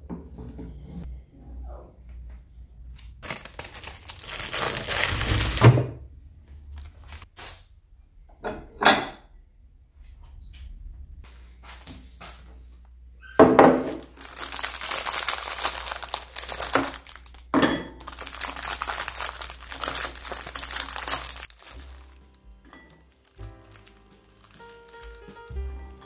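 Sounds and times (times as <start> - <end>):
plastic wrapping crinkling: 3.2 - 5.8, 6.7 - 7.3, 13.8 - 26.0
soft music: 19.4 - 26.0.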